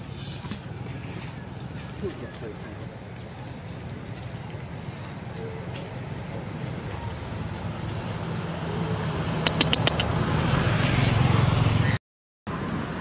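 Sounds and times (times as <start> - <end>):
sharp clicks: 9.4 - 10.1.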